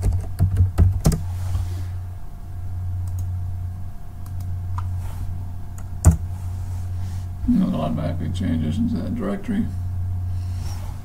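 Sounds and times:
keyboard keys clicking: 0:00.0 - 0:01.2
steady low hum: 0:00.0 - 0:11.0.

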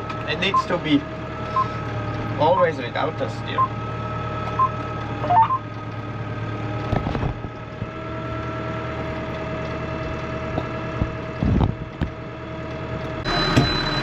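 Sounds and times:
tractor engine running: 0:00.0 - 0:14.0
short electronic beeps: 0:00.5 - 0:00.8, 0:01.5 - 0:01.8, 0:03.5 - 0:03.8, 0:04.5 - 0:05.6.

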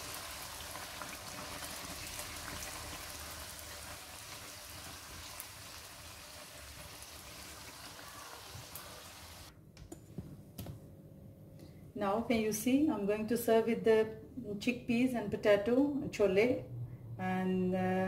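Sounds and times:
dough deep-frying in hot oil: 0:00.0 - 0:09.5.

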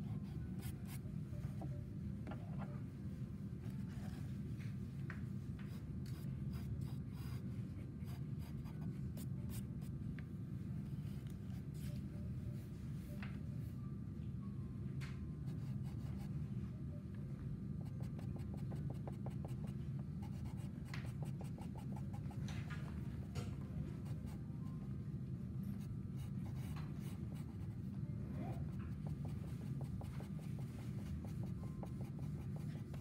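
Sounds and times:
steady low hum: 0:00.0 - 0:33.0
pencil scratching on paper: 0:28.5 - 0:33.0.

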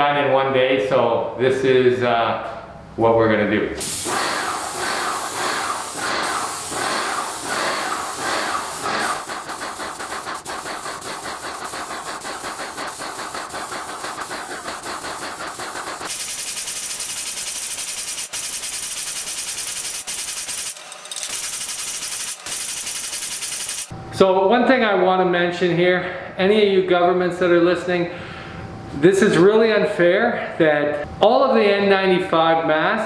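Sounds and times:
paint sprayer pump pulsing: 0:03.8 - 0:23.9
spray gun hissing: 0:03.8 - 0:23.9.

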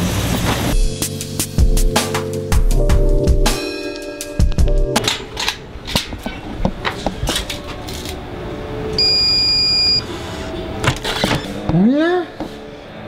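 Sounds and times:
keypad lock beep: 0:09.0 - 0:10.0.

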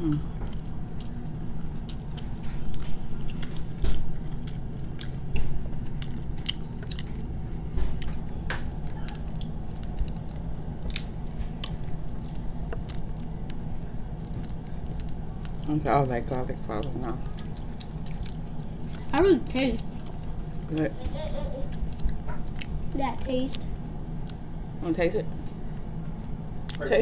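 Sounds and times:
chewing and biting: 0:00.0 - 0:20.9, 0:21.6 - 0:24.7, 0:25.6 - 0:27.0
low hum: 0:00.0 - 0:27.0
shrimp shells cracking: 0:08.0 - 0:15.7.

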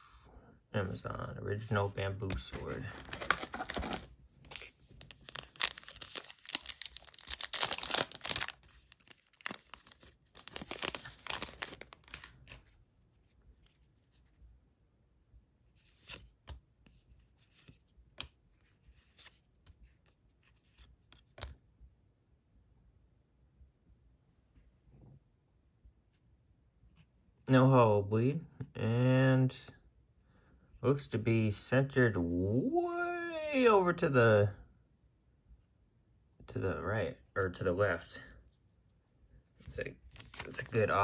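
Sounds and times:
foil wrapper tearing and crinkling: 0:02.8 - 0:12.6.

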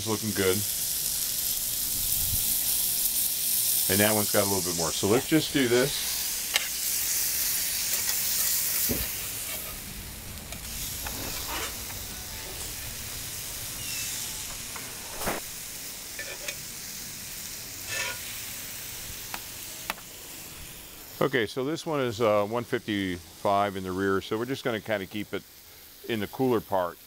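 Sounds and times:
burger patties sizzling on a griddle: 0:00.0 - 0:27.0
metal utensils clinking and scraping: 0:07.8 - 0:09.9, 0:10.5 - 0:12.8, 0:16.2 - 0:16.6, 0:17.9 - 0:18.3.

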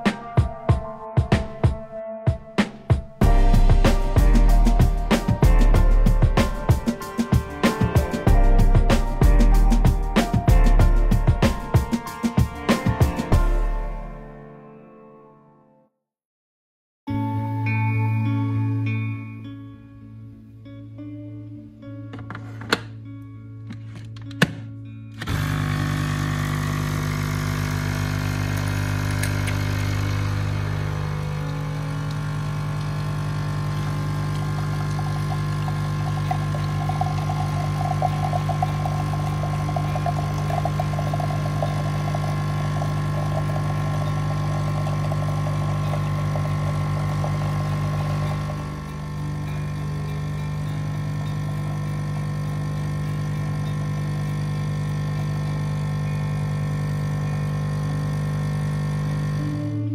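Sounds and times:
coffee machine pump buzzing: 0:25.2 - 0:59.9
hissing coffee stream: 0:25.3 - 0:50.1.

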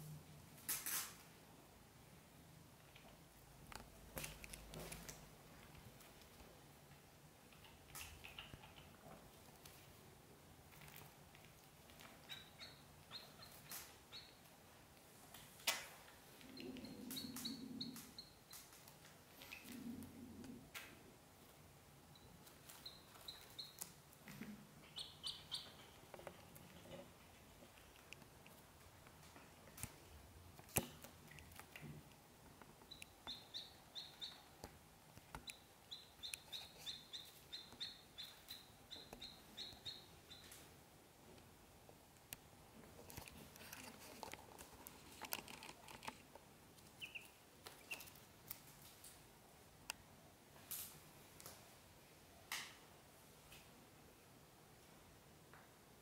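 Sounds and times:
ducklings peeping: 0:12.2 - 0:14.5, 0:16.5 - 0:18.6, 0:22.2 - 0:24.0, 0:24.8 - 0:26.1, 0:32.9 - 0:34.6, 0:35.5 - 0:40.6, 0:46.9 - 0:48.2
ticks and rustles in wicker basket: 0:42.9 - 0:49.2.

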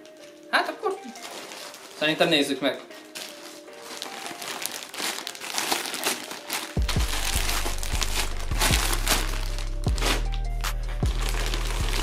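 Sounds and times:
plastic packaging crinkling: 0:00.0 - 0:12.0
music with heavy bass beat: 0:06.8 - 0:12.0.

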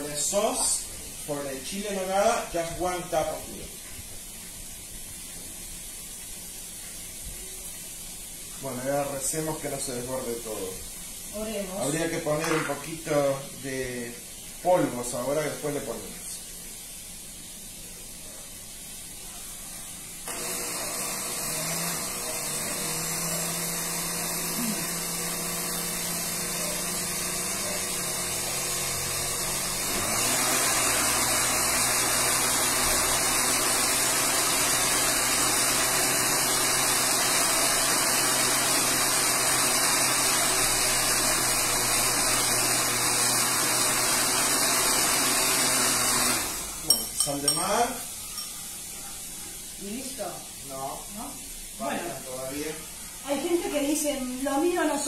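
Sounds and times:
blender running: 0:00.0 - 0:03.6, 0:08.6 - 0:16.4, 0:20.2 - 0:48.0, 0:50.8 - 0:55.0.

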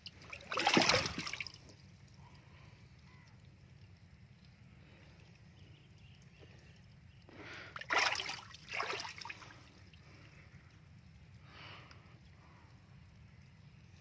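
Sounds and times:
fish splashing in a tank: 0:00.0 - 0:02.6, 0:07.4 - 0:10.2.

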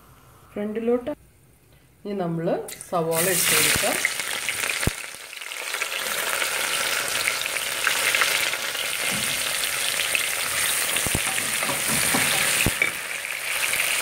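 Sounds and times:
onions sizzling in oil: 0:03.1 - 0:14.0.

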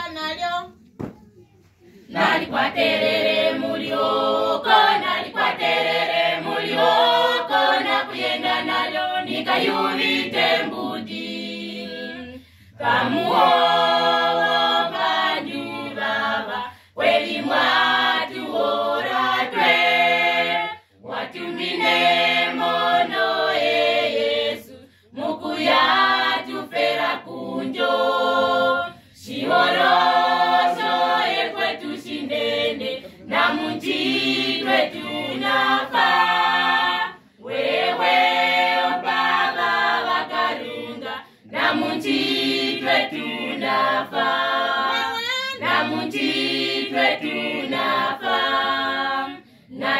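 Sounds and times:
choir singing a cappella: 0:02.0 - 0:49.9.

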